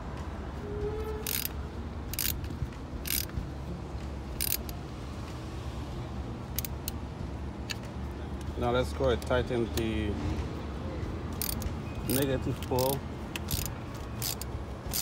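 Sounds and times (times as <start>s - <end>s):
ratchet wrench clicking: 1.2s - 3.4s, 4.4s - 4.8s, 6.5s - 7.0s, 11.3s - 15.0s.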